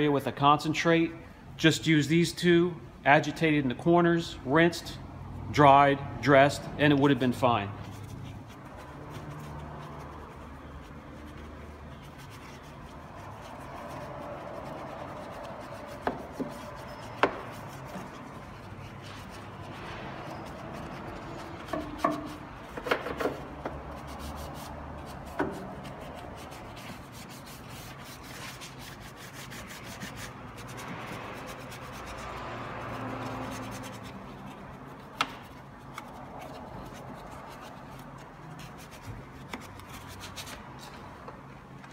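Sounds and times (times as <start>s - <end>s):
brush scrubbing: 7.1s - 41.0s
brush tapping against parts: 20.8s - 24.3s, 25.0s - 26.0s, 33.2s - 40.0s.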